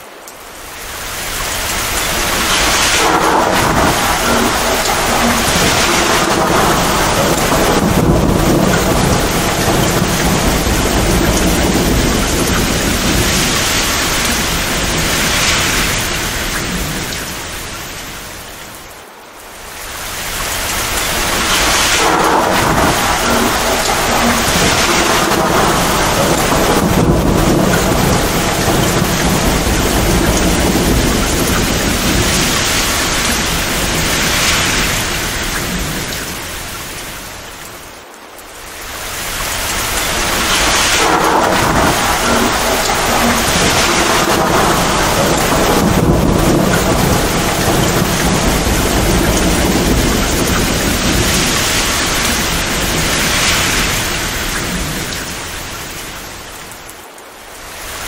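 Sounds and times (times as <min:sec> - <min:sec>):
heavy rain: 0:00.0 - 0:58.0
thunder rumbling: 0:00.4 - 0:18.9, 0:19.6 - 0:56.9.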